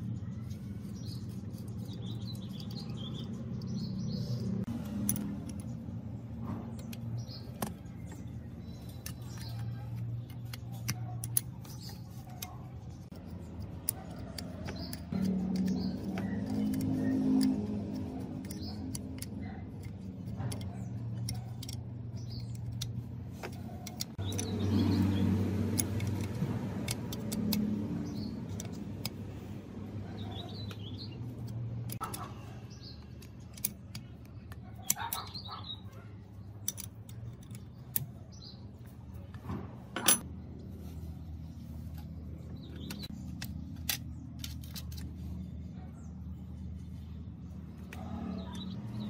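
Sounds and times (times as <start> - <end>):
birds chirping: 0.0 - 49.0
small metallic clicks and clinks: 0.5 - 29.5, 30.3 - 38.6, 40.0 - 40.3.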